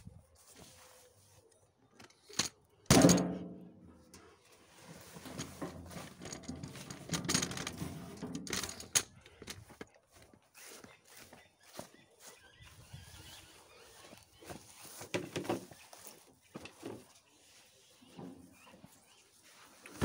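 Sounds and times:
metal wheelbarrow clang: 2.9s - 3.9s
rattling and knocking: 5.2s - 9.8s.

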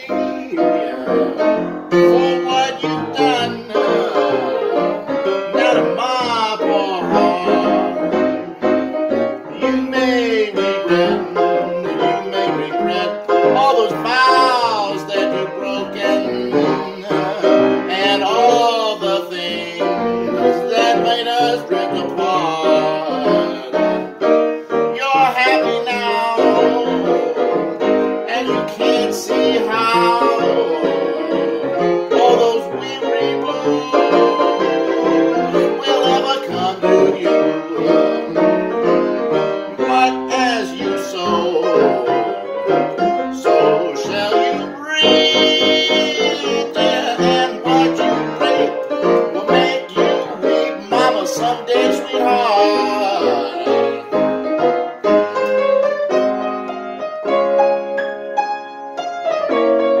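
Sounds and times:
jazz piano: 0.0s - 60.0s.

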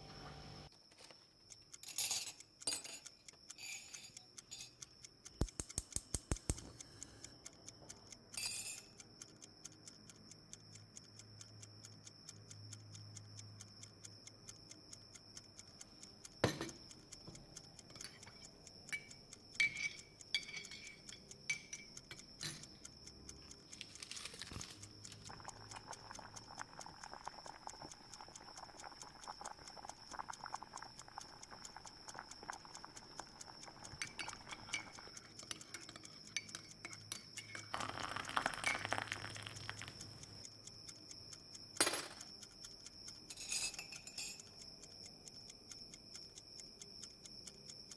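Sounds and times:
cutlery clinking against dishes: 1.8s - 3.0s.

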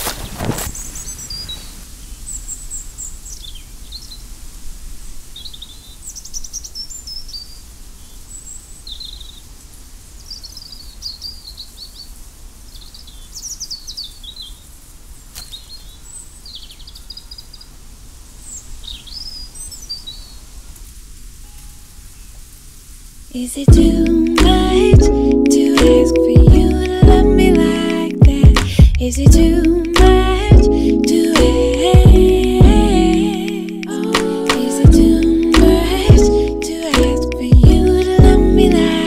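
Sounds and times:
small birds chirping: 0.1s - 4.4s, 5.3s - 17.8s, 18.4s - 20.6s
low outdoor rumble: 23.3s - 33.8s, 34.8s - 39.0s.

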